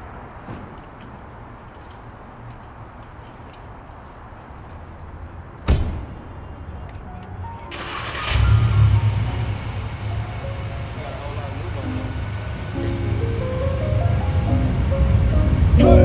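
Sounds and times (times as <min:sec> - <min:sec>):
car engine starting and revving: 0:07.7 - 0:16.0.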